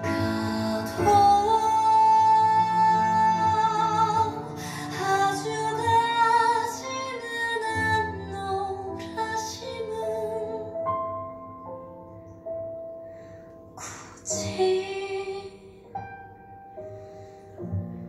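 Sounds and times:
woman singing a slow ballad: 0.0 - 10.8, 13.8 - 16.0.

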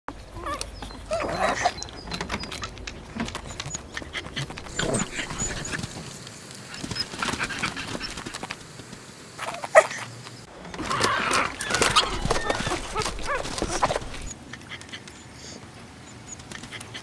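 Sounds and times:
dogs breathing: 0.2 - 8.8, 11.8 - 15.6
small dog vocal sounds: 0.3 - 1.9, 3.4 - 6.0, 9.4 - 10.0, 10.9 - 15.1.

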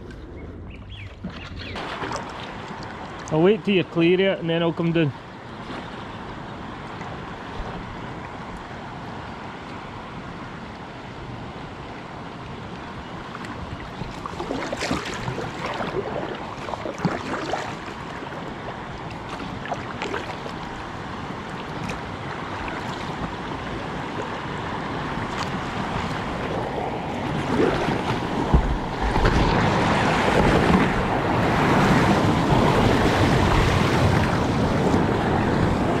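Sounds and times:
water washing against hull: 0.7 - 8.9, 12.7 - 36.0
paddle strokes splashing: 1.0 - 3.3, 13.3 - 36.0
water rushing: 1.1 - 36.0
wind on microphone: 11.6 - 36.0.

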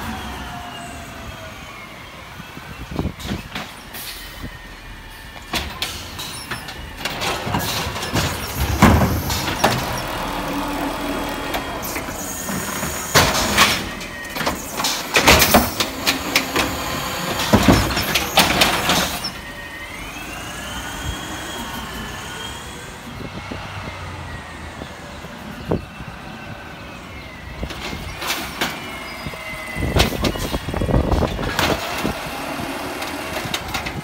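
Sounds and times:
truck engine running with whine: 0.0 - 34.0
garbage truck arm bangs and clatter: 7.1 - 10.0.

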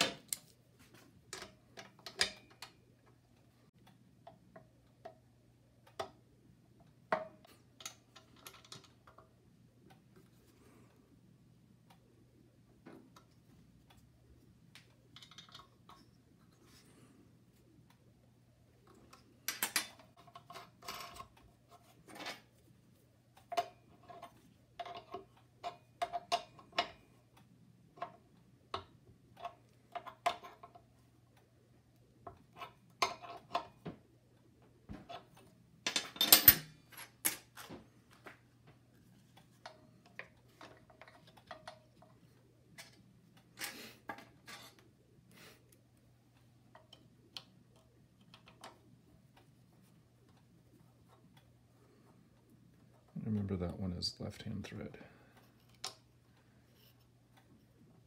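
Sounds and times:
metal tools clinking: 35.9 - 37.6.

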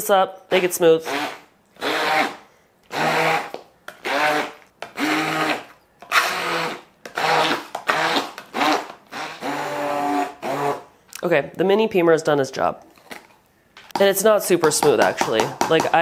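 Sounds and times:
immersion blender bursts: 0.6 - 10.9.

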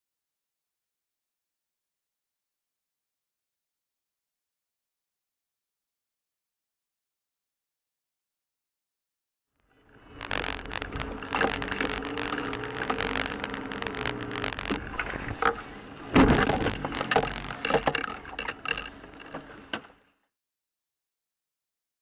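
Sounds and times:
car engine and road noise: 9.8 - 19.9
knocks and rattles: 10.2 - 19.4
heavy thump: 16.1 - 17.0.

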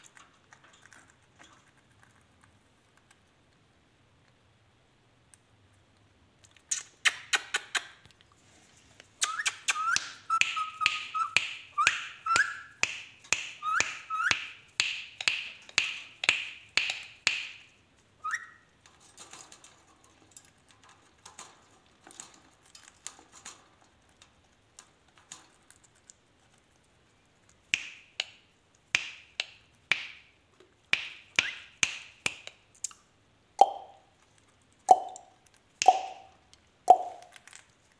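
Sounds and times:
parakeet chirping: 18.2 - 18.6, 35.8 - 36.3.

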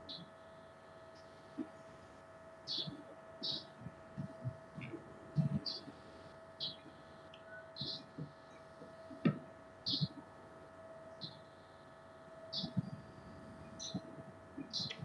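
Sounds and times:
steady electrical hum: 0.0 - 15.0
faint broken speech: 2.7 - 11.4.

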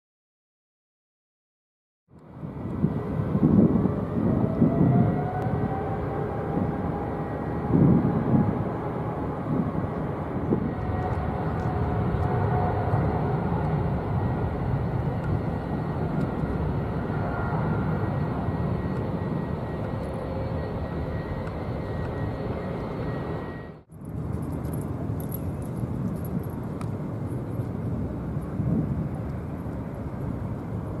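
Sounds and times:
jet airliner taking off: 2.2 - 24.3.

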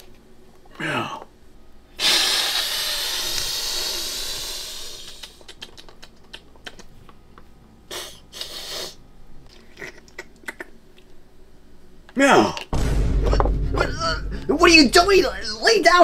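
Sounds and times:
cat hissing: 2.0 - 6.1, 7.9 - 9.0.

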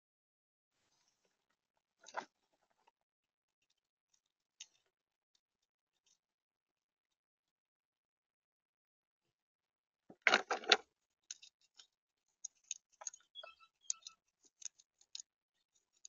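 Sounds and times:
squirrel gnawing and cracking acorn: 10.1 - 16.0.

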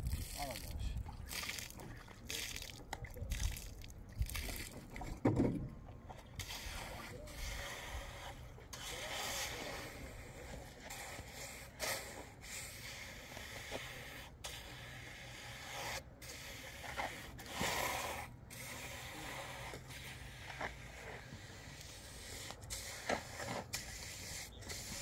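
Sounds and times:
trowel scraping wet cement: 6.3 - 25.0.

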